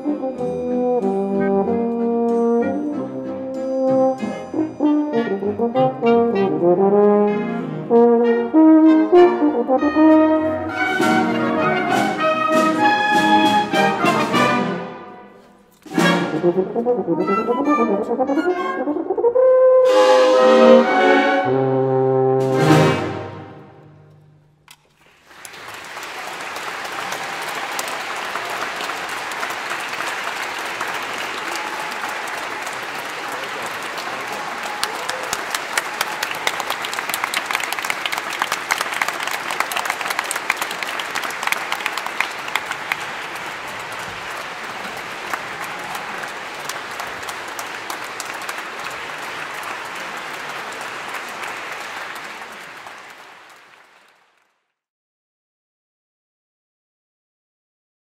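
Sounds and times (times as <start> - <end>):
audience applauding: 24.8 - 54.7.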